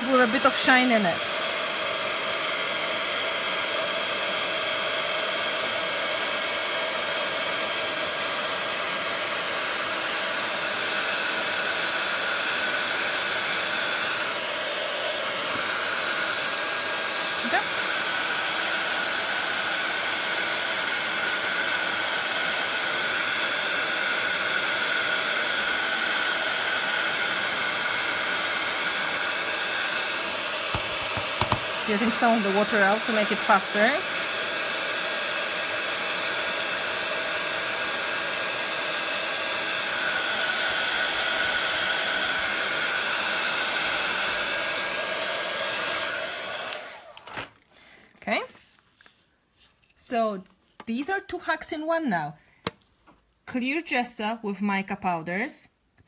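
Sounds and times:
heat gun blowing: 0.0s - 48.4s.

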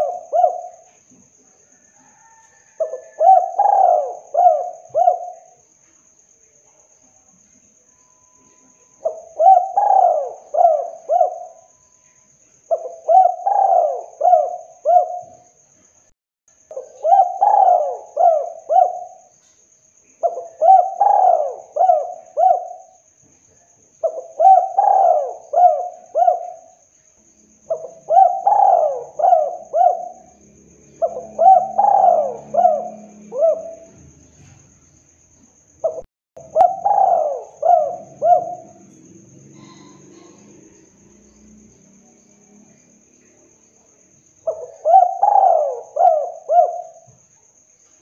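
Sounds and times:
dove cooing: 0.0s - 0.9s, 2.0s - 5.6s, 9.0s - 11.9s, 12.7s - 15.4s, 16.7s - 19.3s, 20.2s - 23.0s, 24.0s - 26.7s, 27.7s - 30.4s, 31.0s - 34.6s, 35.8s - 40.6s, 44.4s - 47.1s.

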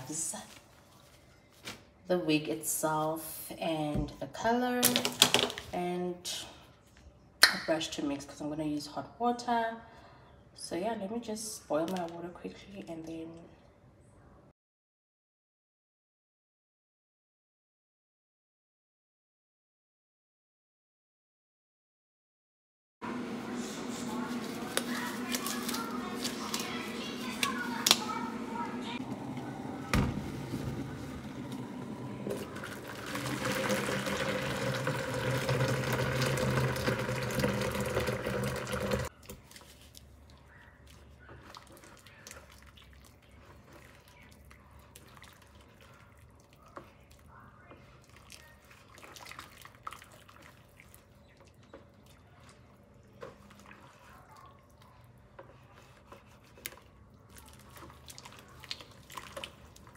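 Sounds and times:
water pouring into plastic bowl: 32.3s - 39.1s.

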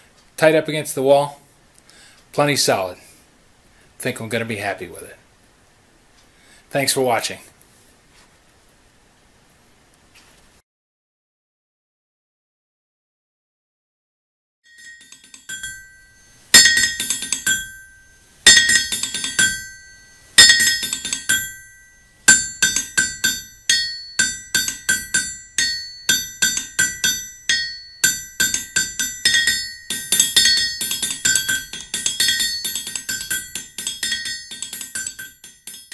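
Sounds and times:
hammer striking anvil: 14.8s - 35.9s.

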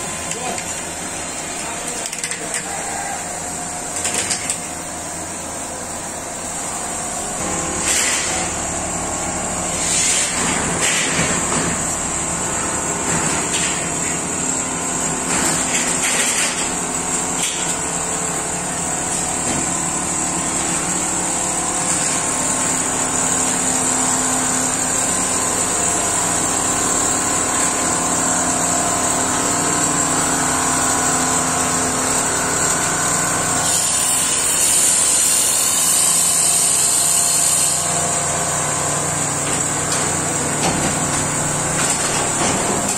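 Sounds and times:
quilting machine running: 0.0s - 42.9s.

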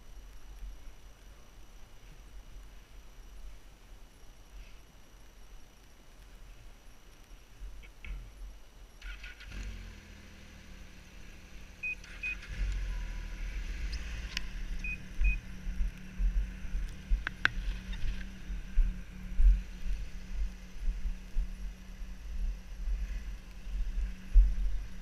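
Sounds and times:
snowmobile engine starting and idling: 9.0s - 15.4s
short electronic beeps: 11.8s - 12.6s, 14.8s - 15.5s.

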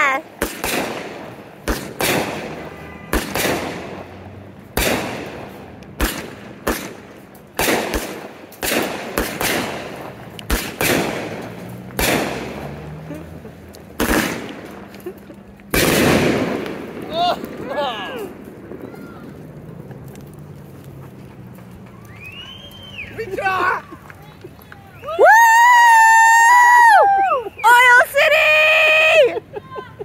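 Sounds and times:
fireworks bangs echoing: 0.0s - 13.2s, 13.8s - 19.9s.

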